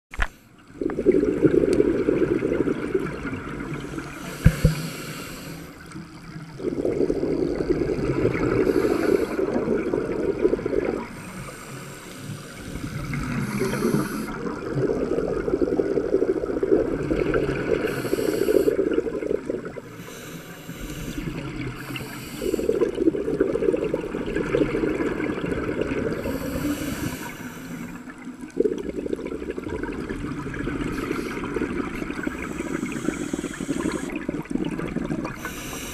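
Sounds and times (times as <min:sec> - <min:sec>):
hissing bursts of exhaled bubbles: 0:00.7 - 0:35.9
diver breathing through regulator: 0:03.9 - 0:05.9, 0:08.5 - 0:09.6, 0:11.1 - 0:14.4, 0:17.8 - 0:18.9, 0:19.9 - 0:23.0, 0:26.2 - 0:28.0, 0:30.9 - 0:34.3, 0:35.3 - 0:35.9.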